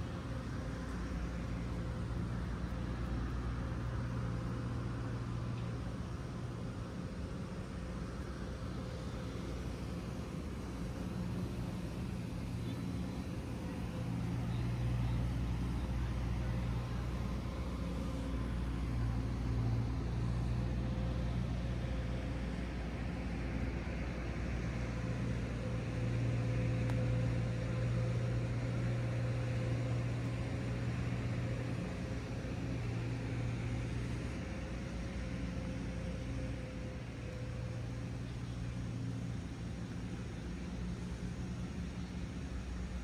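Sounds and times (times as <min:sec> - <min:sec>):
road traffic rumble: 0:00.0 - 0:43.0.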